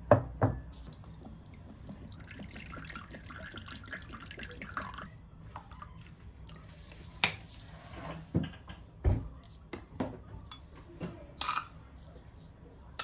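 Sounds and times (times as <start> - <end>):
liquid pouring into a ceramic bowl: 0.9 - 6.0.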